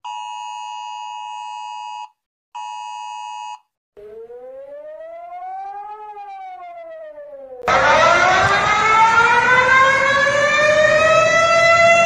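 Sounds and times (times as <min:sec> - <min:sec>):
warning siren wailing: 0:04.0 - 0:12.0.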